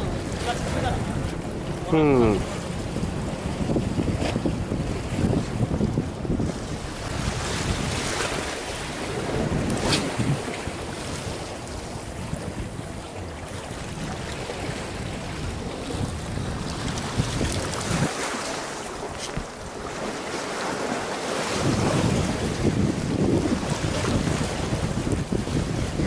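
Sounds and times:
sea waves washing against concrete: 0:00.0 - 0:26.0
wind buffeting microphone: 0:00.0 - 0:26.0.

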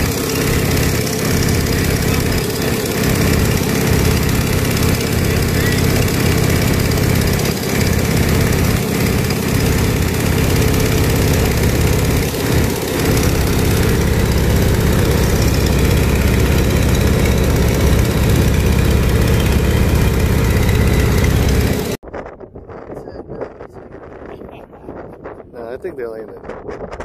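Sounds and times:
biplane engine and propeller: 0:00.0 - 0:27.0
wind rushing over microphone: 0:22.0 - 0:27.0.

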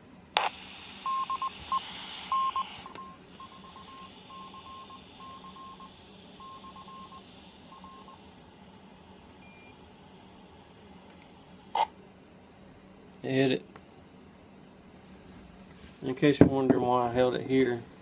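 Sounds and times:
faint radio hiss: 0:00.0 - 0:18.0
short and long beeps: 0:02.3 - 0:08.2.

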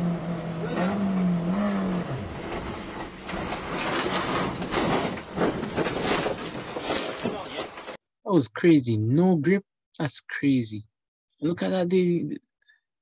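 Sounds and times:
rally car engine: 0:00.0 - 0:07.8
car crashing and tumbling: 0:00.6 - 0:08.0.

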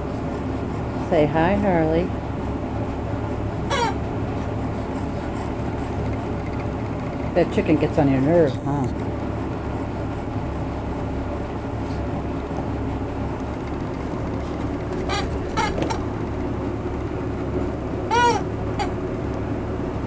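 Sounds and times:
low background rumble: 0:00.0 - 0:20.0
squeaky rubber toy: 0:03.7 - 0:04.0, 0:14.9 - 0:16.1, 0:18.1 - 0:19.0.

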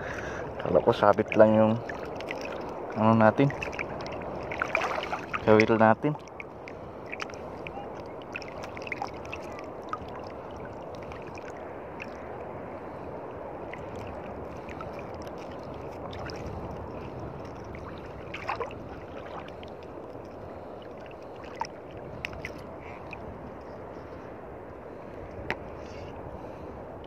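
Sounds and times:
sea water sloshing and lapping: 0:00.0 - 0:27.0
small clicks and splashes: 0:00.6 - 0:06.5, 0:21.0 - 0:23.2.

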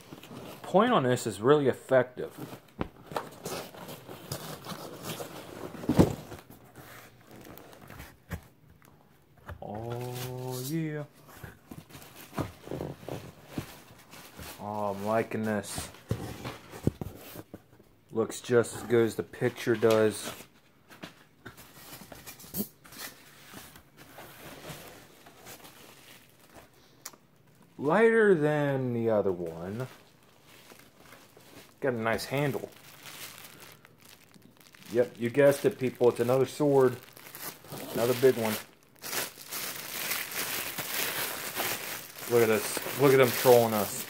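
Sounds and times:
packaging rustling: 0:02.3 - 0:08.4, 0:29.4 - 0:44.0.

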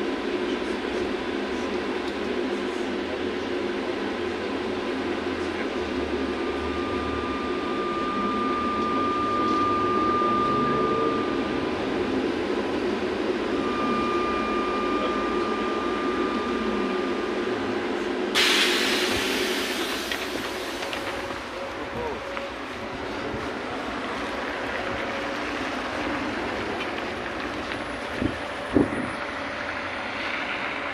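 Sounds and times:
high electrical whine: 0:00.0 - 0:30.9
trolleybus interior rumble: 0:00.0 - 0:30.9
compressed air hissing: 0:18.3 - 0:20.8.

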